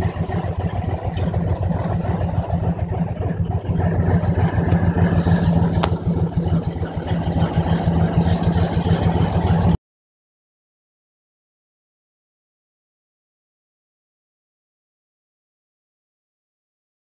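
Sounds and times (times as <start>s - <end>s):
diesel locomotive engine idling: 0.0s - 9.8s.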